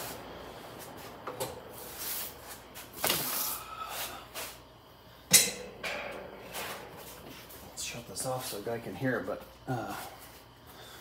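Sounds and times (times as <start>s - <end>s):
fan handling knocks and scrapes: 5.3s - 8.4s.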